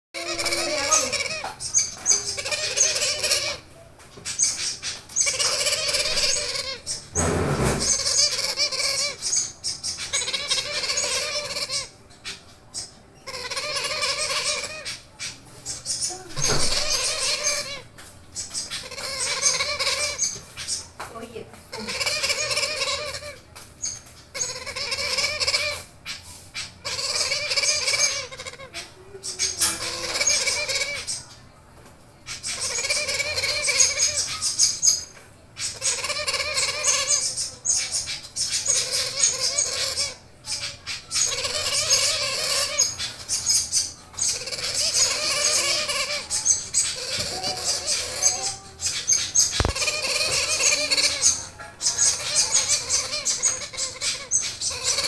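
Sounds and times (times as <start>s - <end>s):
parrot chicks begging calls: 0.2s - 55.0s.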